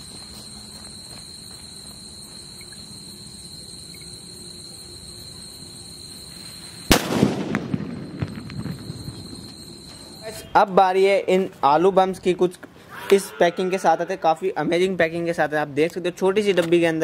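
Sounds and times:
high insect trill: 0.0 - 17.0
firecracker bang: 6.8 - 10.3
crackles and pops of debris: 6.9 - 10.1.

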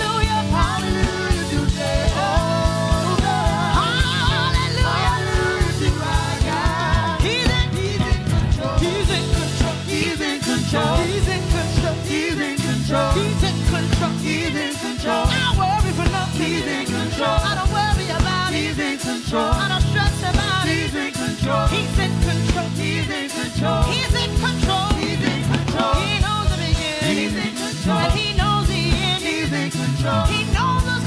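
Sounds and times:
band with drum kit: 0.0 - 31.0
gospel singers: 0.0 - 31.0.

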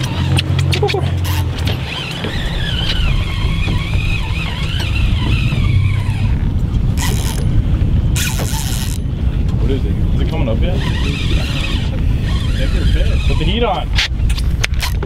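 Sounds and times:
boat motor running: 0.0 - 15.0
wind on microphone: 0.0 - 15.0
wavering high squeal: 1.2 - 6.4.

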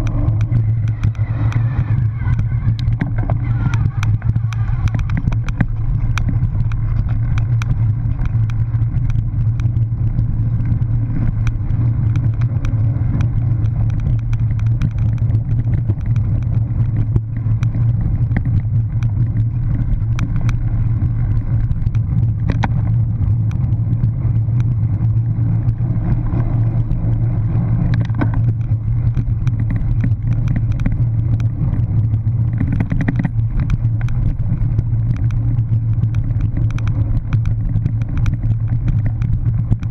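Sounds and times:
bike rumbling over rough ground: 0.0 - 39.9
rattling clicks from bike: 0.0 - 39.9.

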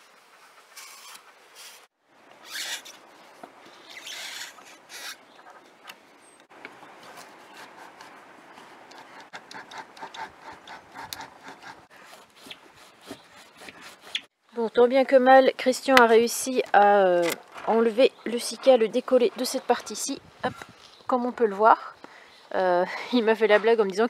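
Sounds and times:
knife sawing through sealant: 9.0 - 14.3.

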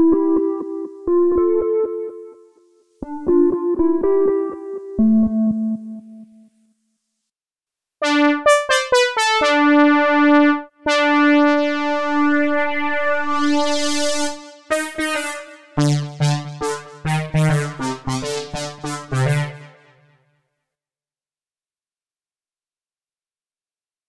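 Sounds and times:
synth chord stabs over bass: 8.0 - 19.8
synth brass notes: 8.0 - 20.1.

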